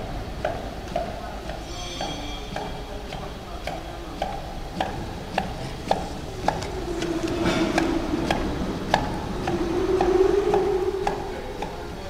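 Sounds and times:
machine clicking: 0.4s - 11.8s
motor hum: 2.5s - 12.0s.

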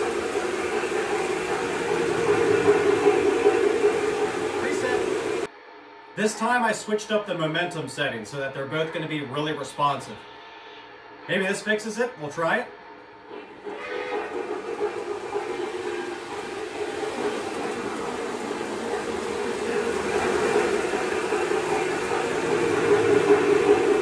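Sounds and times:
model train wheels rumbling on rails: 0.0s - 5.5s, 13.4s - 24.0s.

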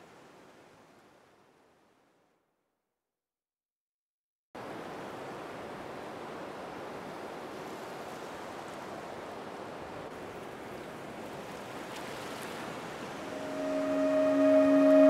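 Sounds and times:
ocean surf rushing: 13.1s - 15.0s
held music notes: 13.3s - 15.0s.

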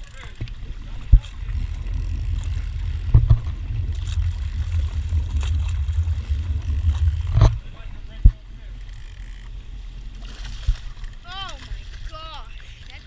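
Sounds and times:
wind and water buffeting camera: 0.0s - 13.0s.

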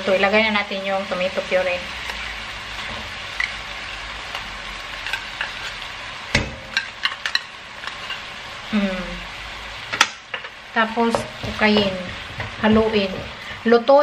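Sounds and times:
meat sizzling in a pot: 0.0s - 14.0s
metal spoon scraping a tin can: 4.9s - 5.8s.

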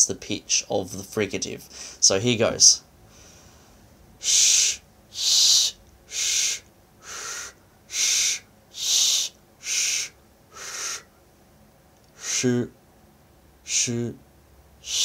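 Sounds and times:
man making sh hisses: 4.2s - 11.1s, 12.1s - 12.7s, 13.7s - 14.2s.

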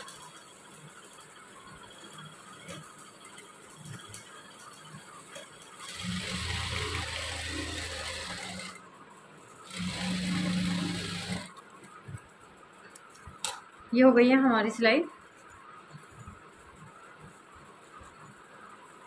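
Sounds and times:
sewing machine stitching: 0.0s - 8.8s, 9.7s - 11.6s.

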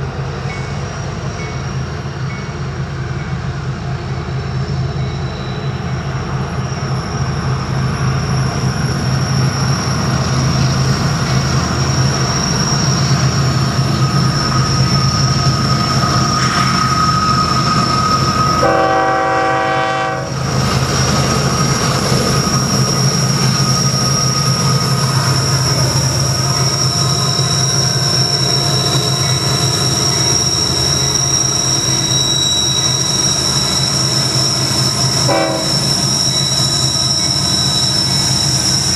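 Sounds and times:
diesel locomotive engine drone: 0.0s - 38.9s
high wheel squeal: 0.5s - 38.9s
locomotive horn: 18.6s - 20.4s, 35.2s - 35.9s.

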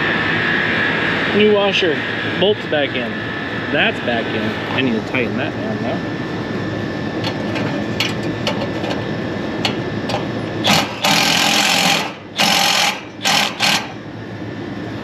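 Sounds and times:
steady machinery hum: 0.0s - 15.0s
cordless power driver bursts: 10.6s - 13.9s.

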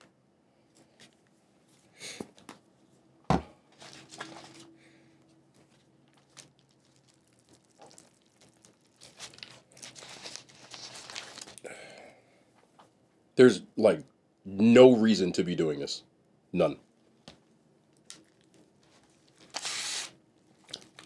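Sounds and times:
packaging crinkling and tearing: 6.0s - 11.7s, 18.0s - 21.0s.

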